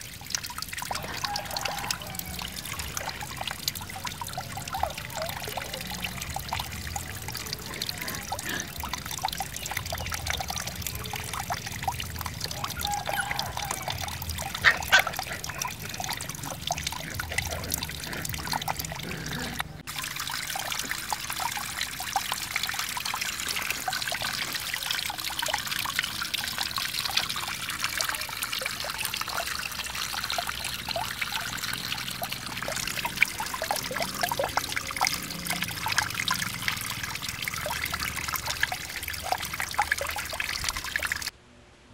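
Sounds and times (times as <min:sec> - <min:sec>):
water trickling over rocks: 0:00.0 - 0:41.4.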